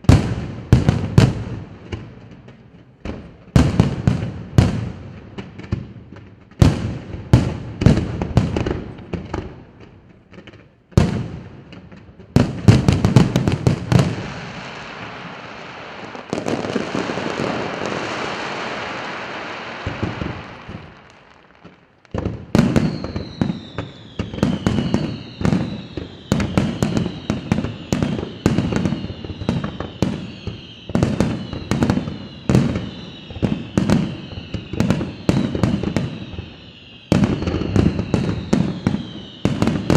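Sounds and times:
firework crackling: 0.0 - 39.9
firework whistles sliding down: 13.9 - 39.9.

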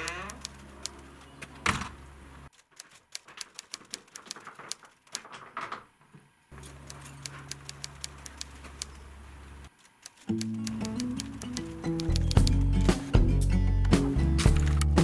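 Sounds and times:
keys jangling in a lock: 6.6 - 7.6.

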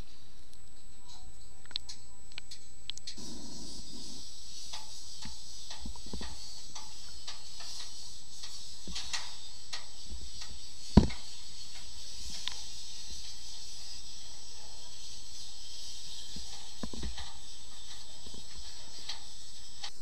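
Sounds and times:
underwater hiss: 3.2 - 20.0
faint irregular clicks: 4.0 - 13.7.

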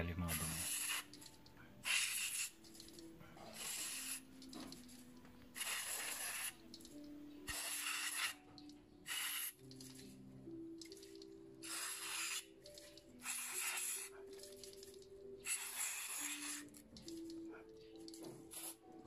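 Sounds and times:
aerosol spray hissing: 0.3 - 1.2, 1.8 - 2.9, 3.5 - 5.0, 5.6 - 6.9, 7.5 - 8.4, 9.1 - 10.1, 11.6 - 14.2, 15.4 - 16.8, 18.4 - 18.8.

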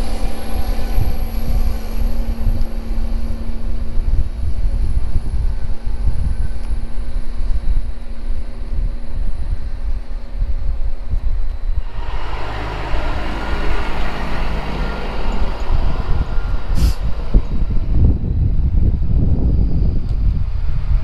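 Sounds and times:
tractor diesel engine running: 0.0 - 21.0
wind rumble on microphone: 0.0 - 21.0
truck pulling away rushing: 11.6 - 21.0.

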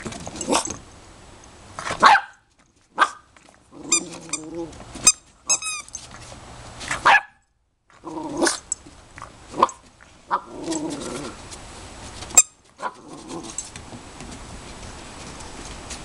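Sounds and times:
puppy barking: 2.0 - 2.4, 3.0 - 3.2, 7.0 - 7.4
puppy growling: 3.6 - 4.8, 7.9 - 11.4, 12.8 - 13.6.

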